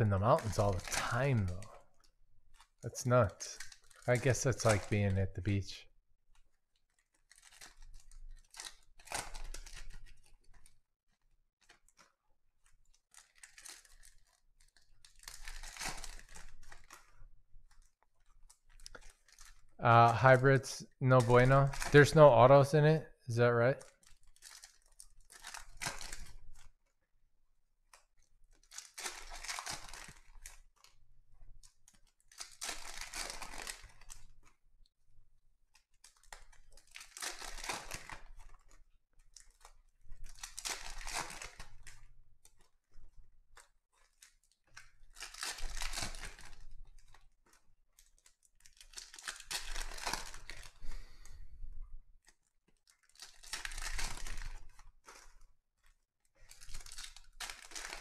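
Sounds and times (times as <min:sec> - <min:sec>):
foil wrappers ripping and crinkling: 0:00.2 - 0:01.8, 0:06.8 - 0:10.8, 0:12.8 - 0:19.7, 0:23.8 - 0:26.7, 0:28.2 - 0:31.0, 0:31.6 - 0:34.5, 0:35.8 - 0:50.9, 0:52.2 - 0:58.0.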